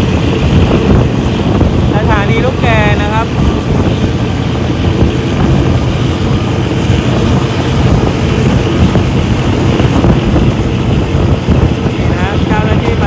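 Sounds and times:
train carriage and wheels running: 0.0 - 13.0
wind buffeting microphone: 0.0 - 13.0.

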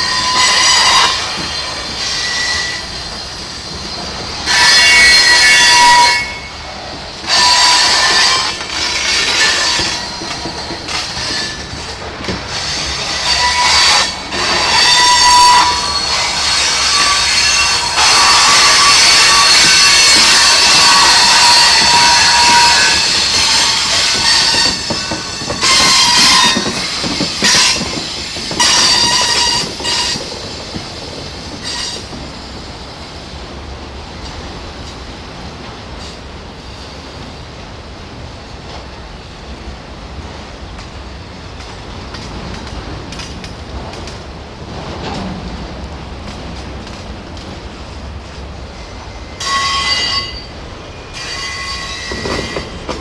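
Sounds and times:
wheel flange squeals: 0.0 - 32.5, 48.8 - 53.0
train wheels rumbling: 0.0 - 53.0.

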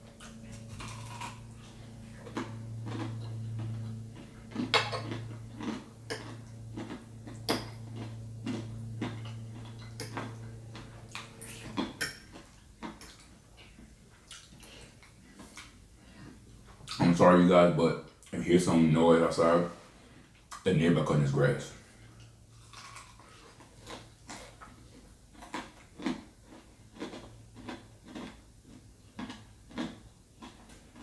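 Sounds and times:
lawn mower hum: 0.0 - 11.8
chewing: 0.1 - 17.1, 22.1 - 31.0.

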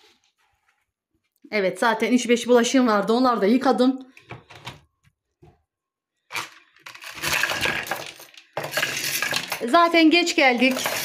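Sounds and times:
small hard objects clinking: 6.3 - 11.0.

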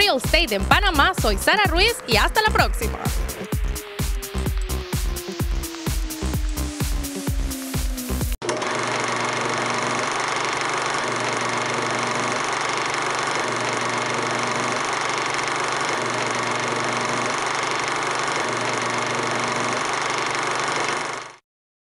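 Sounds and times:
film projector whirring: 3.1 - 21.4.

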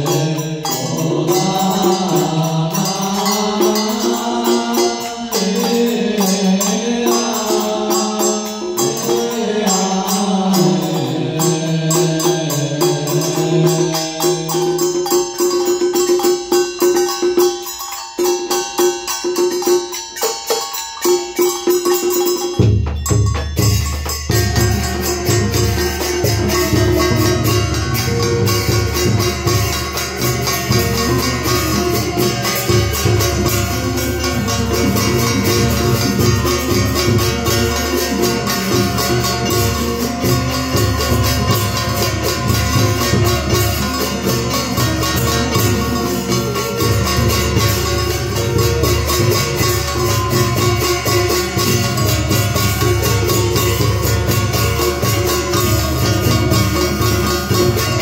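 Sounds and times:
ritual ensemble music with drums: 0.0 - 58.0
held note: 20.2 - 58.0.

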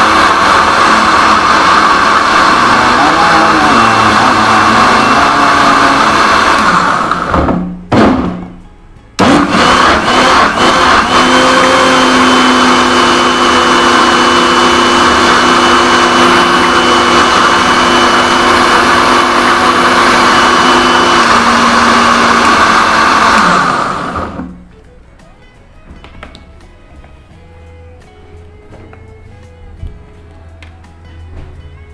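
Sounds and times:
mixer grinder blending: 0.0 - 7.5, 9.2 - 24.6.

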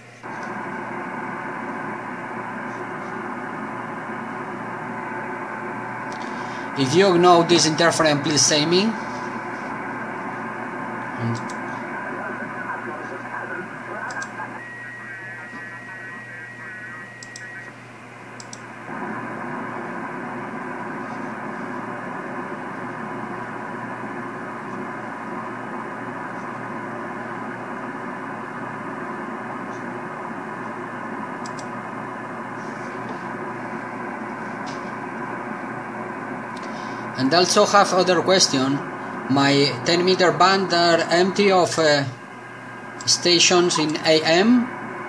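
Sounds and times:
radio hiss and interference: 0.0 - 45.0
faint clicks: 18.4 - 18.6, 31.4 - 31.7.

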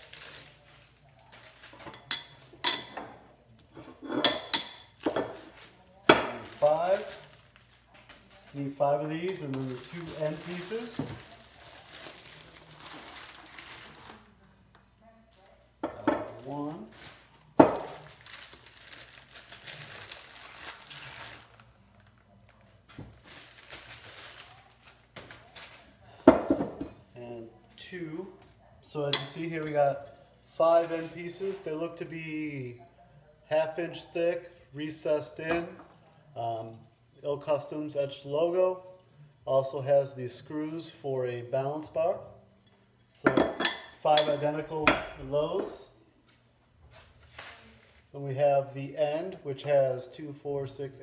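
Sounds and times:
plastic wrapping crinkling: 0.0 - 1.8, 5.3 - 14.7, 16.4 - 26.1
metal bars clinking: 1.8 - 3.1, 43.2 - 44.6.

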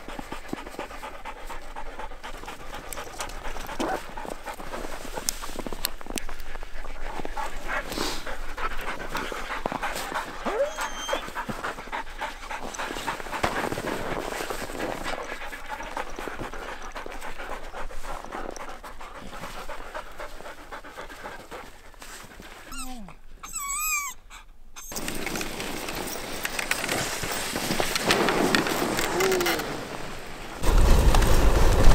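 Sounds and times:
dogs panting: 0.0 - 29.2
dog whining: 10.4 - 11.4, 22.6 - 25.4.

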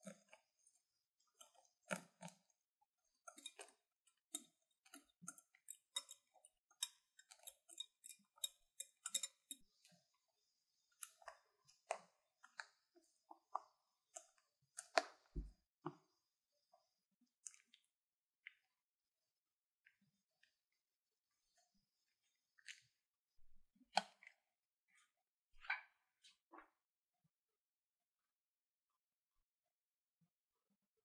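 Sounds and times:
wet mixing sounds: 0.0 - 18.8, 21.4 - 26.7
whisk clicking against glass bowl: 4.3 - 9.6.

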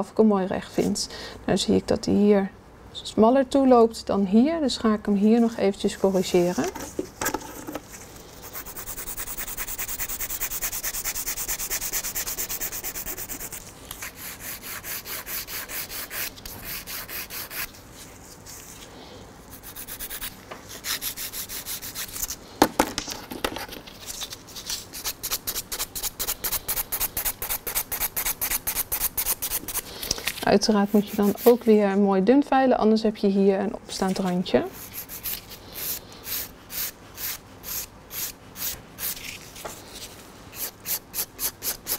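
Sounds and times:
nail file rasping: 8.4 - 17.7, 19.6 - 22.3, 40.6 - 41.9.

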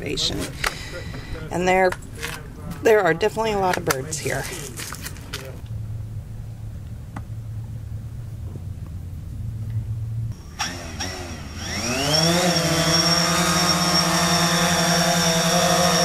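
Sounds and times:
drone motors buzzing whine: 9.5 - 16.0.

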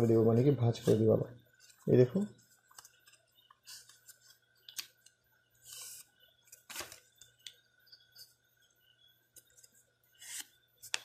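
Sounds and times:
paper being folded and creased: 5.6 - 7.1.

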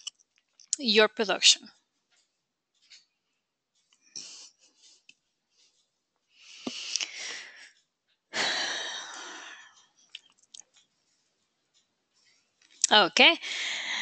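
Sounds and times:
person breathing: 6.3 - 9.8, 13.4 - 14.0.

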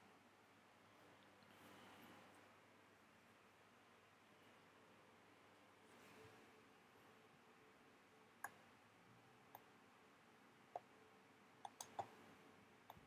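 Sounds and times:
computer mouse clicks: 11.6 - 12.2.

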